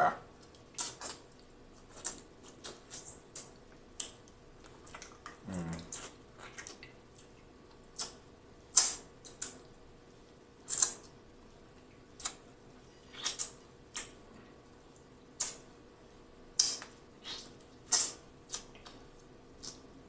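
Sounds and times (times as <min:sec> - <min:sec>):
wet mouth smacks and sucking: 0:00.4 - 0:06.9, 0:07.9 - 0:09.6, 0:12.2 - 0:12.4, 0:13.1 - 0:14.2, 0:15.4 - 0:15.6, 0:16.6 - 0:19.0
person humming: 0:05.4 - 0:06.0.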